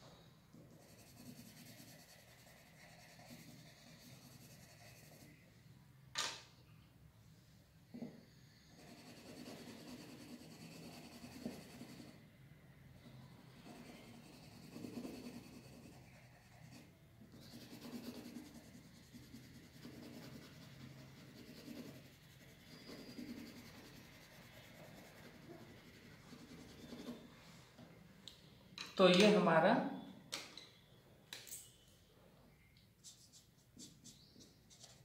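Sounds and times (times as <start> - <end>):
pencil shading on paper: 0.5 - 5.4, 8.5 - 12.2, 13.5 - 27.3.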